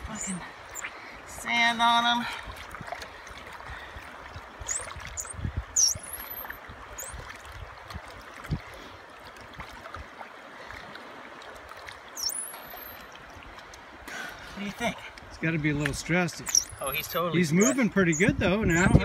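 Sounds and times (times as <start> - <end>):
shallow water trickling: 0.0 - 18.8
dolphin whistles: 4.7 - 7.1, 12.2 - 13.0.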